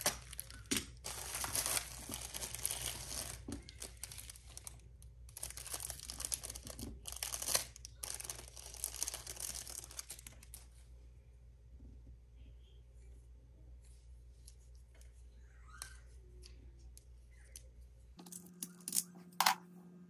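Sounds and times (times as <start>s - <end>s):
packaging crinkling and tearing: 0.0s - 10.7s.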